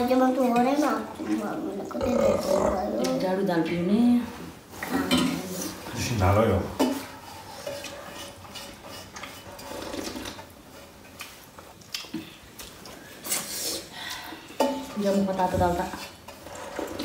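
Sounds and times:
dishes clinking: 4.8s - 5.7s, 6.7s - 9.5s.

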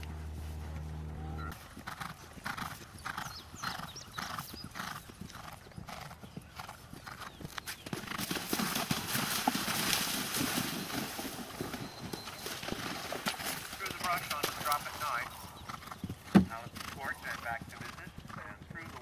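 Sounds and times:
horse hooves on turf: 0.0s - 19.0s
horse splashing in water: 8.2s - 15.1s.

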